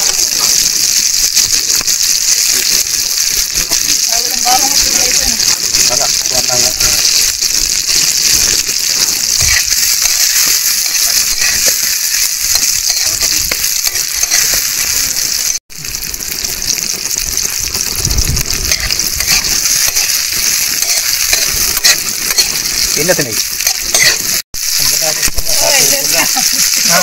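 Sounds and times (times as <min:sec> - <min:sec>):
shellfish sizzling in oil: 0:00.0 - 0:27.0.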